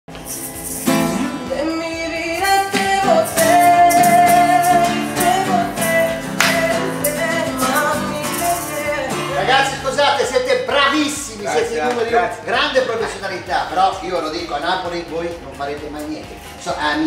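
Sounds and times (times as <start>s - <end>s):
strummed acoustic guitar: 0.1s - 13.6s
men singing together: 2.5s - 10.0s.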